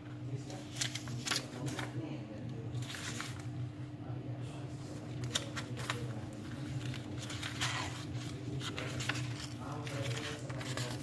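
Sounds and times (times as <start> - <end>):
steady low hum: 0.0 - 11.0
paper pages turning: 0.5 - 2.0, 2.7 - 3.6, 5.0 - 11.0.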